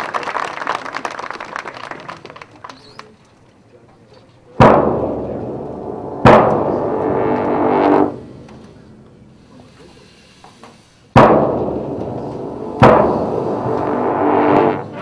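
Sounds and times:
marching band playing: 4.6s - 8.8s, 11.4s - 15.0s.

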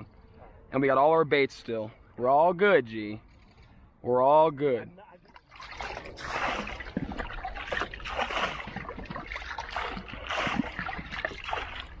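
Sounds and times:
water splashing in a canoe: 5.2s - 12.0s.

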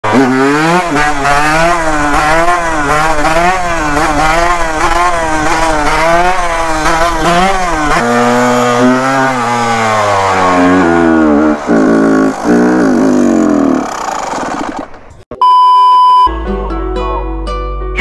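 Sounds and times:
dirt bike engine revving: 0.0s - 15.2s.

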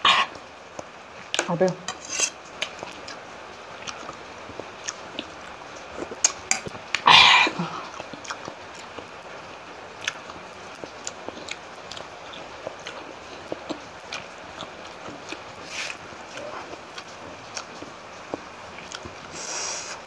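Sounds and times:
wet chewing and lip-smacking: 3.8s - 7.0s, 7.8s - 9.1s, 10.0s - 19.4s.

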